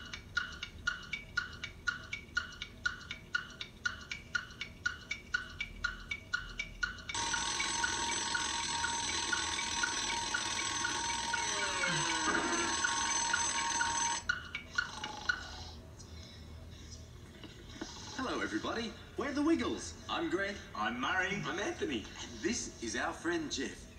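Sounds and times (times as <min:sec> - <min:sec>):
alarm clock ticking: 0:00.0 - 0:15.7
alarm clock bell ringing: 0:07.1 - 0:15.1.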